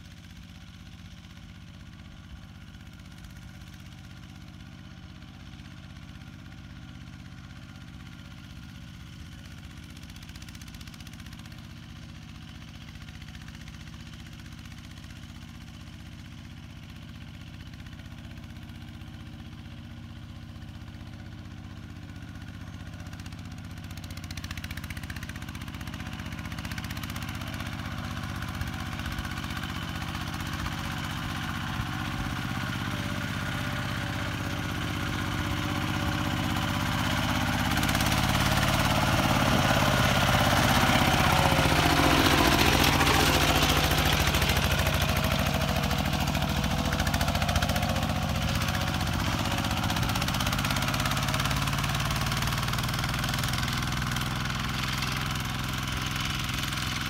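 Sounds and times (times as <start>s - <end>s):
diesel tractor engine running: 0.0s - 57.0s.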